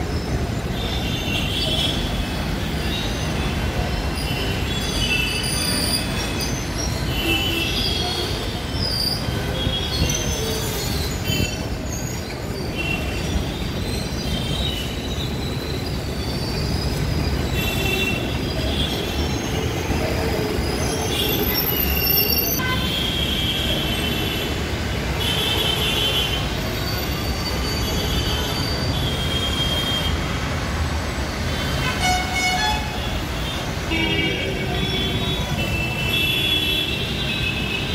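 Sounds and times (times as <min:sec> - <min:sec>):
wheels squealing: 0:02.7 - 0:22.6
train rumbling on rails: 0:08.0 - 0:22.6.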